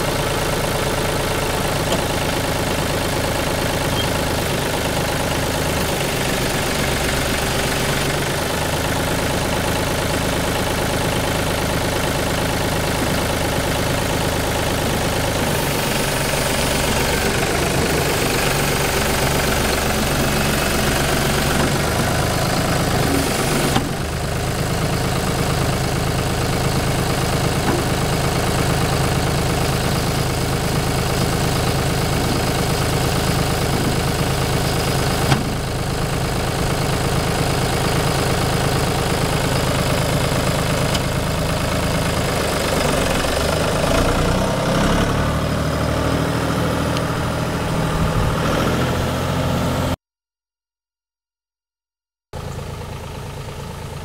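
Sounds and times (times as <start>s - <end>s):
tractor diesel engine running: 0.0s - 50.0s, 52.4s - 54.0s.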